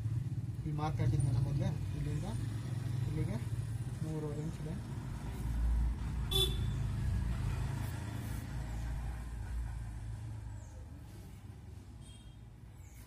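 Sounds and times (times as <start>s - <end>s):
motor vehicle passing: 0.0s - 11.9s.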